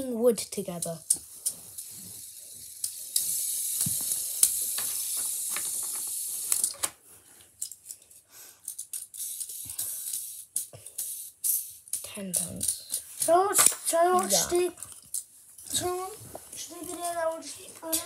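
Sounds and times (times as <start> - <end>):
small objects clicking and rattling: 0.8 - 6.9, 7.5 - 15.3
steady hiss: 1.0 - 6.8, 8.2 - 14.8, 15.6 - 18.0.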